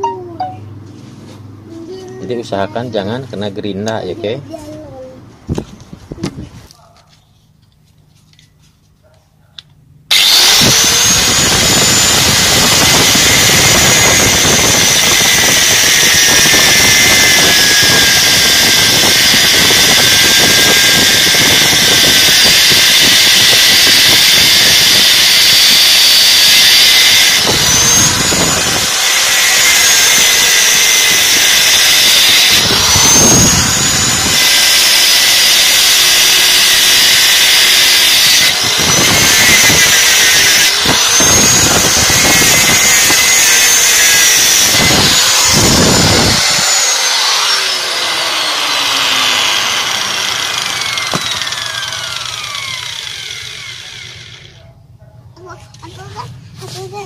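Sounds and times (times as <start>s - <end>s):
angle grinder cutting: 10.1s - 54.6s
grinder disc spinning down: 10.1s - 54.6s.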